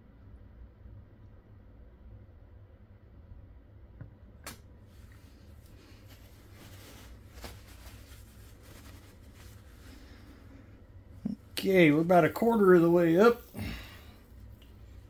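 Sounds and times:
soft rustling: 4.8 - 15.0.

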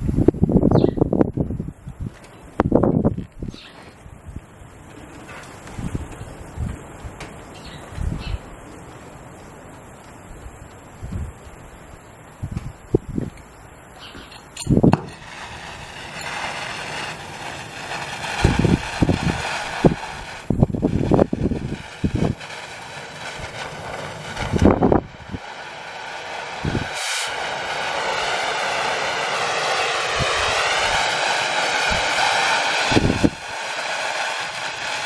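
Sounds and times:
torch flame hissing: 3.9 - 35.0
cutting torch lighting pop: 14.1 - 25.5.

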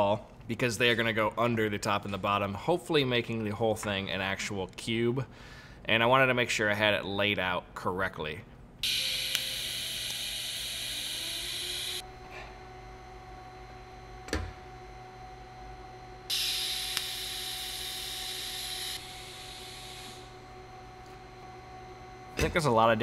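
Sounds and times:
low steady hum: 10.6 - 23.0
welding arc hissing: 16.3 - 20.3.

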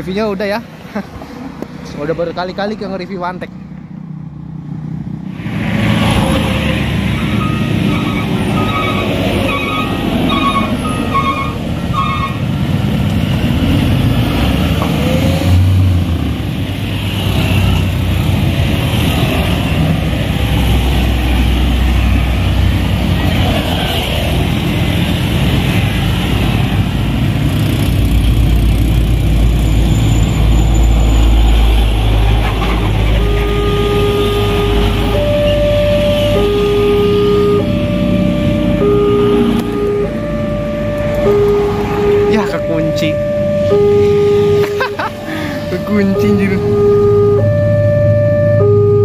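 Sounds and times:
trucks and motorcycles driving past: 0.0 - 49.0
two-tone warning alarm: 7.0 - 12.4, 33.0 - 49.0
short electronic beeps: 7.2 - 11.6, 33.2 - 40.3, 41.1 - 49.0.

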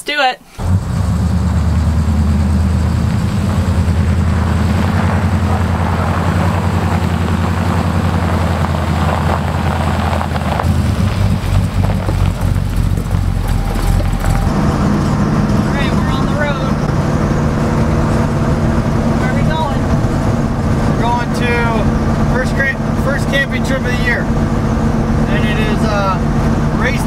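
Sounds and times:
truck engine running: 0.6 - 27.0.

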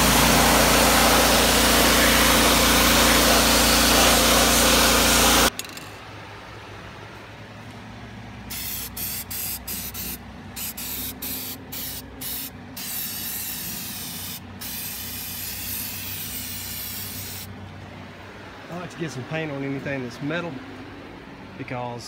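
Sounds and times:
spray can hissing: 8.5 - 17.5.

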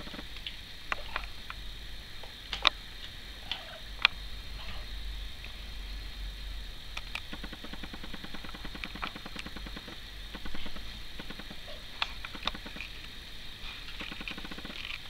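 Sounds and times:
kittens clicking and scratching: 7.0 - 15.0
fast fluttering soft pulses: 7.2 - 15.0.

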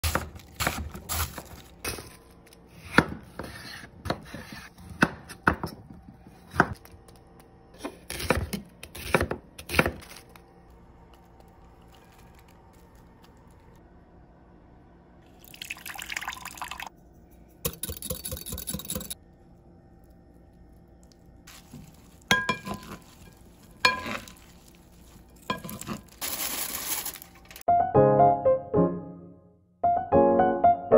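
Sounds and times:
liquid being poured: 15.3 - 16.9
piano music: 27.6 - 30.9.

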